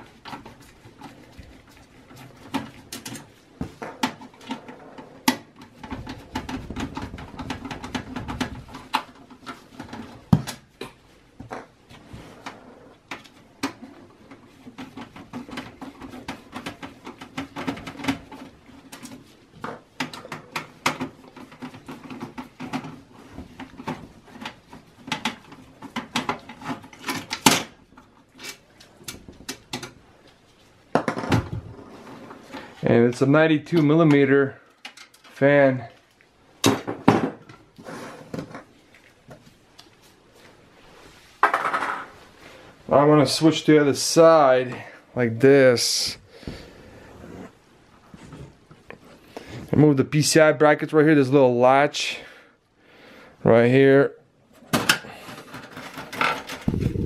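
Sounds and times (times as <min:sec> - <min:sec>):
metal and plastic clicks and knocks: 0:00.2 - 0:11.8, 0:12.4 - 0:30.0, 0:54.6 - 0:57.0.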